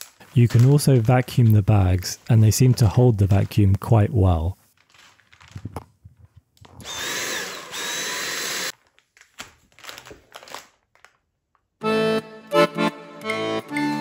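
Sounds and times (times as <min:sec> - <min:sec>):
plastic bag crinkling: 0:00.0 - 0:03.7, 0:04.7 - 0:06.8, 0:08.6 - 0:11.8
cordless vacuum whine: 0:06.8 - 0:08.7
accordion music: 0:11.8 - 0:14.0.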